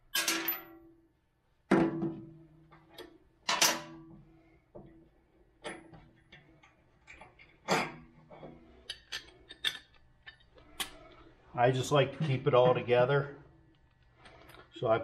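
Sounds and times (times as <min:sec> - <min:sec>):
metal tools clanking on steel: 0:08.9 - 0:11.0.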